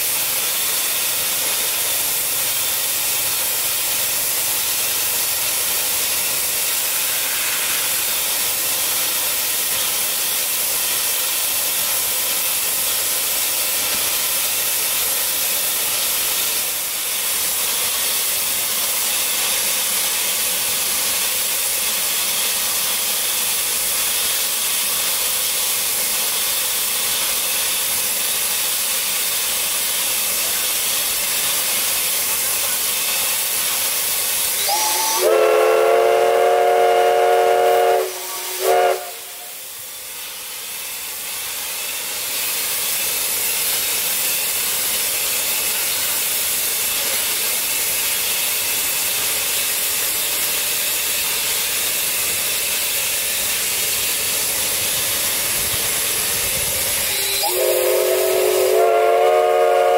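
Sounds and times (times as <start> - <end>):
steam venting hiss: 0.0 - 59.9
steam whistle chord: 34.6 - 39.6, 57.2 - 59.9.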